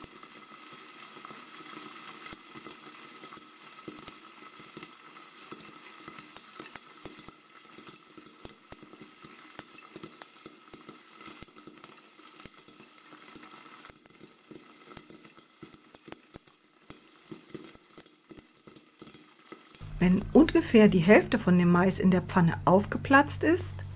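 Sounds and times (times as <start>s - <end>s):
oil sizzling: 0.1s - 23.9s
popcorn popping: 2.2s - 19.2s.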